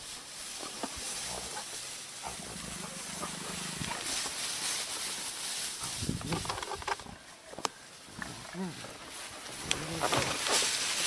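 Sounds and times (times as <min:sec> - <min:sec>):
steady hiss: 0:00.0 - 0:11.0
hyenas growling: 0:02.2 - 0:04.0, 0:09.6 - 0:10.4.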